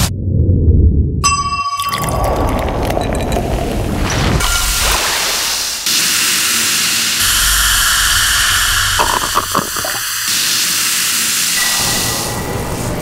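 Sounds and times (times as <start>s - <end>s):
soda fizzing over ice: 8.8s - 12.2s.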